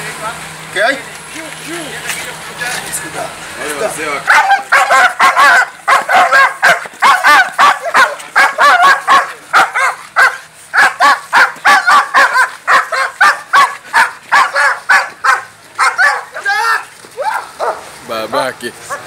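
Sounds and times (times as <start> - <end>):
large dog barking aggressively: 4.2 - 18.0.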